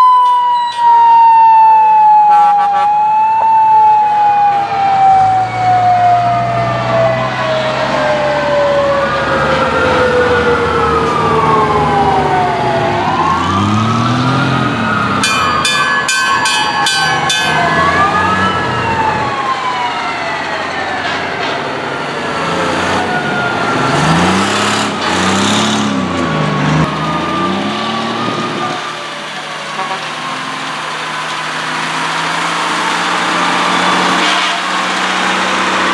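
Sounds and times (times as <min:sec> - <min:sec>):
siren winding down: 0:00.0 - 0:21.6, 0:22.5 - 0:29.0
fire truck sirens wailing: 0:00.0 - 0:35.9
truck engines revving: 0:00.0 - 0:35.9.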